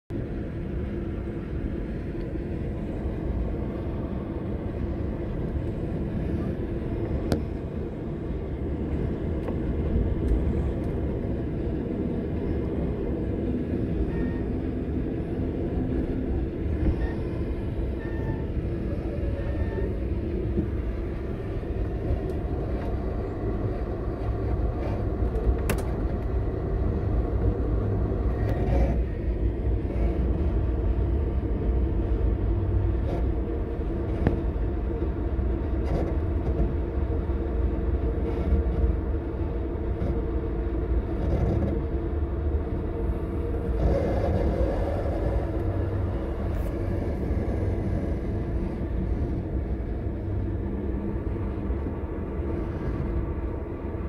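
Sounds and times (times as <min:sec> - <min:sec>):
train wheels rumbling on rails: 0:00.1 - 0:54.0
sharp clicks of train wheels: 0:25.2 - 0:26.3.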